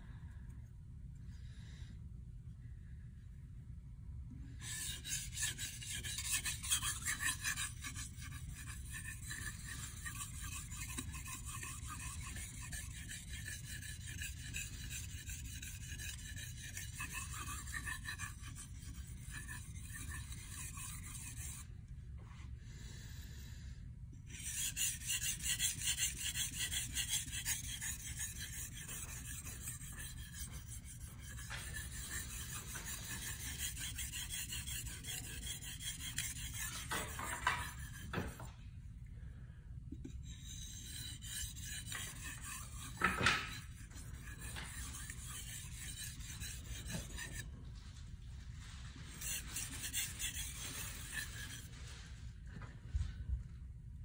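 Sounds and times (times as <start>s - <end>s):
knife scraping on whetstone: 4.6s - 21.7s, 24.3s - 38.5s, 40.0s - 47.5s, 48.6s - 52.0s.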